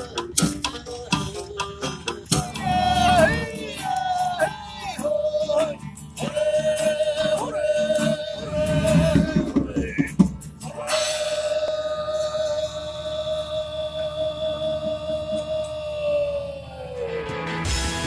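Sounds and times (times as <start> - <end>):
folk-rock band playing live: 0.0 - 10.8, 17.1 - 18.0
plucked strings and guitars: 0.0 - 11.7, 17.0 - 18.0
man singing: 0.9 - 17.1.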